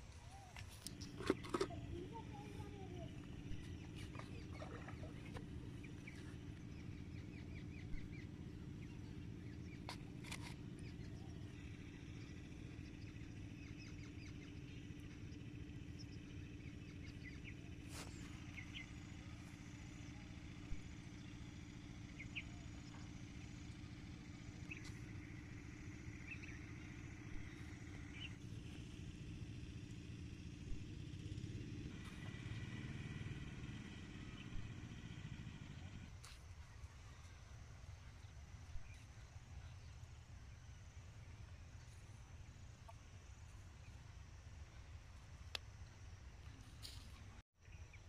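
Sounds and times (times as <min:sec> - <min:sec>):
low motor hum: 0:00.0 - 0:48.0
bird chirps: 0:00.2 - 0:28.4.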